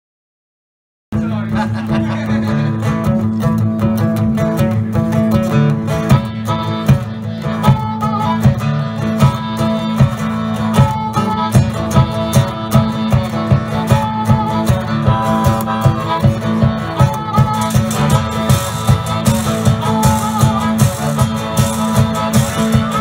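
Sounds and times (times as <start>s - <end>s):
guitars playing blues: 1.2s - 23.0s
steady drum beat: 1.2s - 23.0s.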